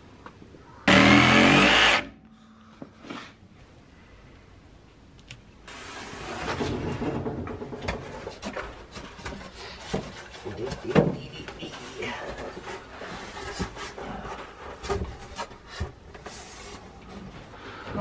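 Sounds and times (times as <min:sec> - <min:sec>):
power tool whining: 0:00.9 - 0:02.2
building materials rustling and knocking: 0:05.7 - 0:18.0.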